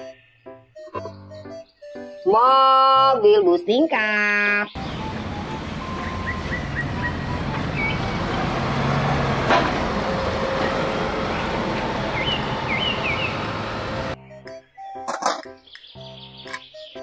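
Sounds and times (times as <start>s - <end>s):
road noise: 4.7s - 14.2s
bus driving past: 4.8s - 14.2s.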